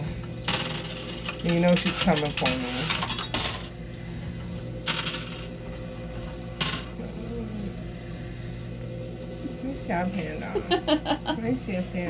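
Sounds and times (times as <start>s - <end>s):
arcade machine hum: 0.0s - 12.0s
coins dropping and sliding: 0.5s - 3.7s, 4.8s - 5.5s.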